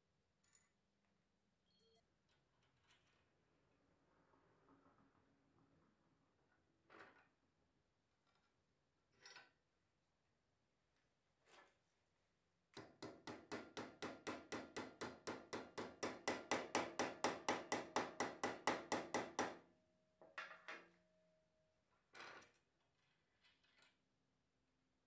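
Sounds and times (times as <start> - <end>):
hammer tapping metal rod: 12.8 - 19.6.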